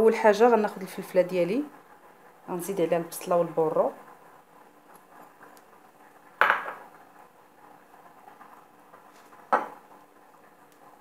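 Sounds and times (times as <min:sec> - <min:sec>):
bowl knocking: 0:06.4 - 0:06.8
ceramic bowl clinking on pan: 0:06.4 - 0:06.8.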